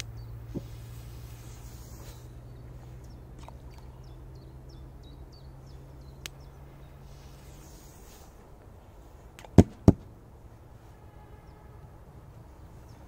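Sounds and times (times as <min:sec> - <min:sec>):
low hum: 0:00.0 - 0:09.4.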